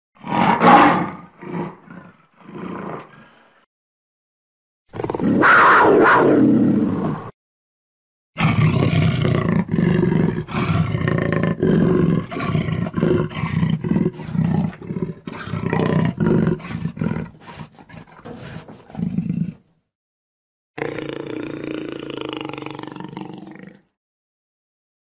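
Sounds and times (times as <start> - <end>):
jaguar roaring: 0.2 - 3.5, 5.0 - 7.3, 8.4 - 19.6.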